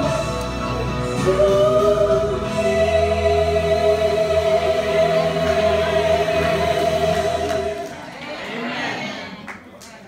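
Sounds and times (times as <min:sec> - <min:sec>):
woman and man singing in harmony: 0:01.0 - 0:08.0.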